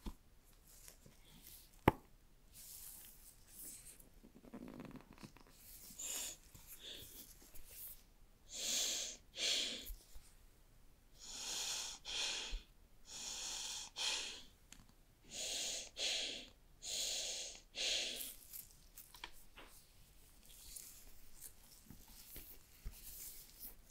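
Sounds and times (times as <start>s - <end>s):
headphones swishing in soft case: 18.3s - 23.9s.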